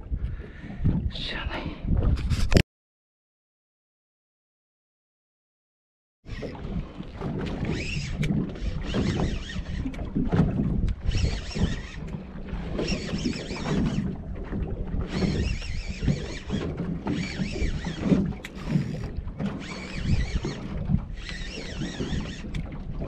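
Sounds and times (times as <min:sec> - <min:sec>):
water slapping boat hull: 0:00.0 - 0:01.1, 0:06.3 - 0:23.0
wind buffeting microphone: 0:00.0 - 0:02.6, 0:06.3 - 0:23.0
high whirring: 0:07.6 - 0:10.0, 0:10.9 - 0:14.2, 0:15.0 - 0:22.6.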